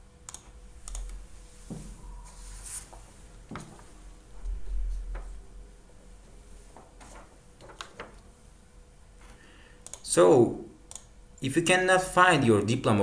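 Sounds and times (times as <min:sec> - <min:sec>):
faint steady hum: 0:00.0 - 0:13.0
computer mouse clicks: 0:00.2 - 0:01.2, 0:09.8 - 0:10.1, 0:10.9 - 0:11.1
low rumble: 0:04.0 - 0:06.5.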